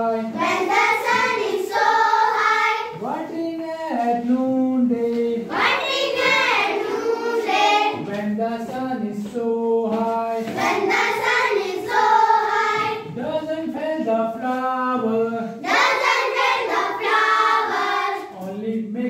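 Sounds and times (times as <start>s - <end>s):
children singing in chorus: 0.1s - 3.0s, 5.4s - 8.2s, 10.4s - 13.1s, 15.6s - 18.4s.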